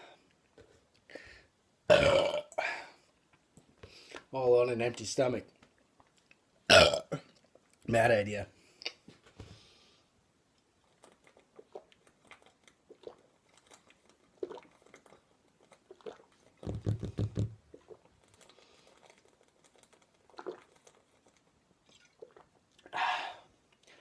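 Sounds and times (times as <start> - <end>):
person swallowing and gulping: 1.9 - 2.6, 6.7 - 7.5, 11.2 - 23.0
liquid glugging from bottle: 11.4 - 18.1, 20.2 - 21.0, 21.8 - 22.6.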